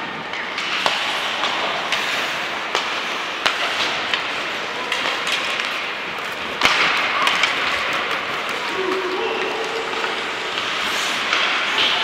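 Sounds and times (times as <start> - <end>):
hockey sticks and puck clacking: 0.0 - 12.0
skates scraping on ice: 0.0 - 12.0.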